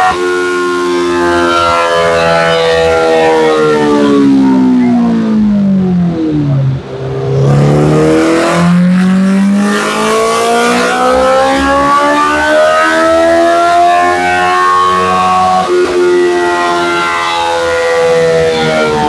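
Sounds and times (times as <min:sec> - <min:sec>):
motorcycle engine revving on a dyno: 0:00.0 - 0:19.0.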